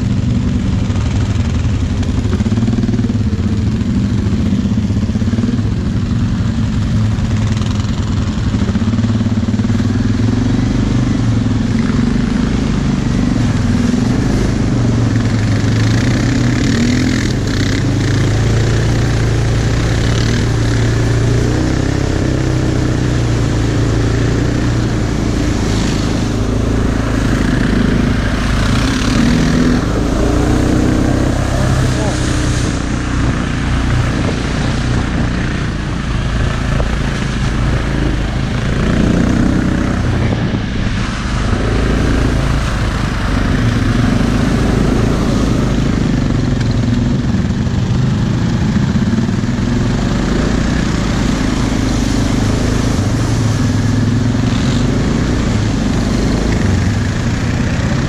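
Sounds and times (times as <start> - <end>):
atv engine running: 0.0 - 58.0
mud and water splashing: 0.0 - 58.0.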